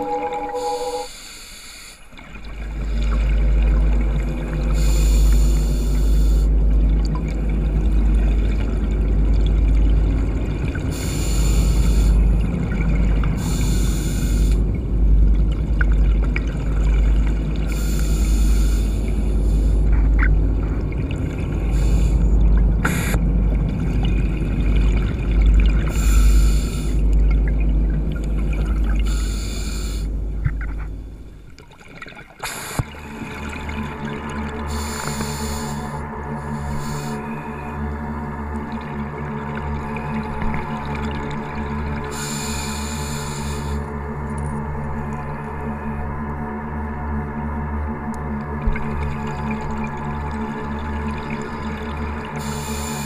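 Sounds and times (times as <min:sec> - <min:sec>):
low underwater rumble: 0:00.0 - 0:01.0, 0:02.4 - 0:42.4, 0:43.1 - 0:53.0
exhaled bubbles rushing: 0:00.0 - 0:01.1, 0:02.1 - 0:36.6
diver breathing through regulator: 0:00.0 - 0:02.1, 0:04.7 - 0:06.6, 0:10.9 - 0:12.4, 0:13.4 - 0:14.7, 0:17.7 - 0:20.2, 0:21.6 - 0:23.2, 0:25.9 - 0:27.1, 0:28.9 - 0:30.2, 0:34.6 - 0:37.8, 0:42.1 - 0:43.9, 0:52.3 - 0:53.0.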